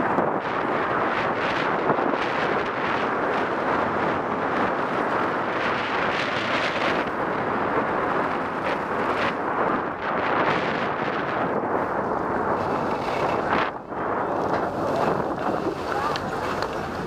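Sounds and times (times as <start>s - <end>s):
wind rushing over microphone: 0.0s - 17.0s
skis sliding over packed snow: 0.1s - 17.0s.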